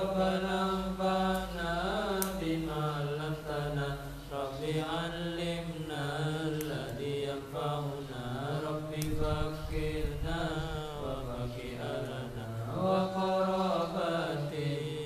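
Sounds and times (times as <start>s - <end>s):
man chanting into microphone: 0.0s - 15.0s.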